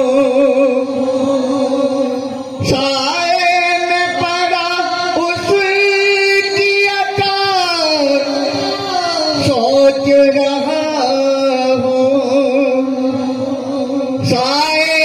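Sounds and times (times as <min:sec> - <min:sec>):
man singing long notes: 0:00.0 - 0:15.0.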